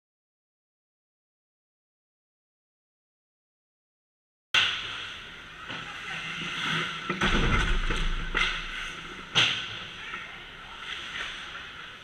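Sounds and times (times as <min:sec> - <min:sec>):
sharp crack: 0:04.6 - 0:05.1
sticks and puck clacking: 0:04.6 - 0:12.0
skates hissing on ice: 0:04.7 - 0:07.2, 0:08.4 - 0:12.0.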